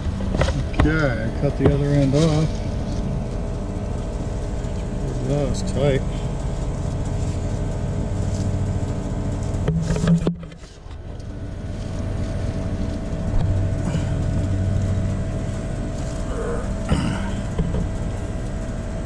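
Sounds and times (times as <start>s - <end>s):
motor hum: 0.0s - 19.0s
pipe knocking and scraping: 0.2s - 3.1s, 9.6s - 11.1s.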